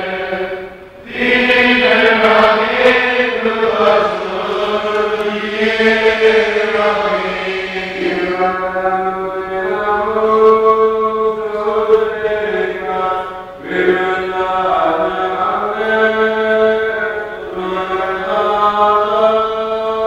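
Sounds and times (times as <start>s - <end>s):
group chanting a hymn: 0.0s - 20.0s.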